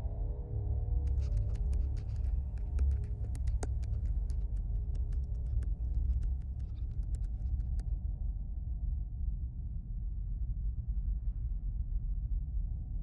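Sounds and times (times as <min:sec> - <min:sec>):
sharp clicks and crackles: 0:01.1 - 0:07.8.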